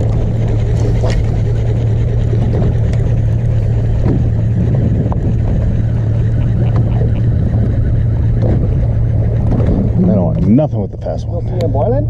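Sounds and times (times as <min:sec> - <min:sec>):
boat engine humming: 0:00.0 - 0:12.0
water: 0:00.0 - 0:12.0
wind: 0:00.0 - 0:12.0.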